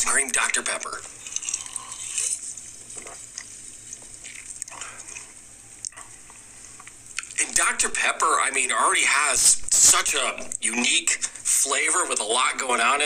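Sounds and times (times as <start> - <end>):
man drinking and swallowing: 1.1 - 7.4.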